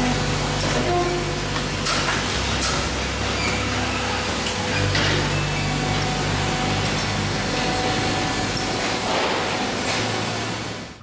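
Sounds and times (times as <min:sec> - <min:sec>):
engine drone: 0:00.0 - 0:11.0
wide mechanical noise: 0:00.0 - 0:11.0.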